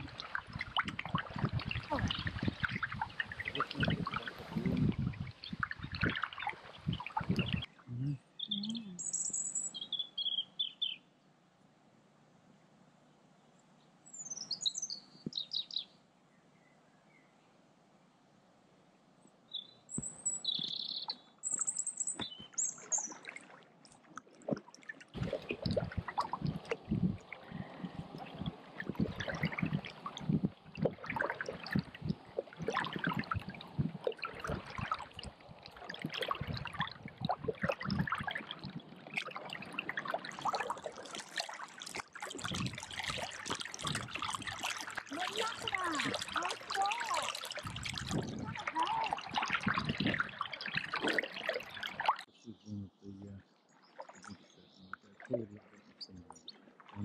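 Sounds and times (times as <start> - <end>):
paddle splashing water: 0.0 - 7.8, 20.0 - 52.3, 53.8 - 57.0
small birds chirping: 5.2 - 11.1, 14.0 - 17.4, 19.5 - 23.3, 52.3 - 57.0.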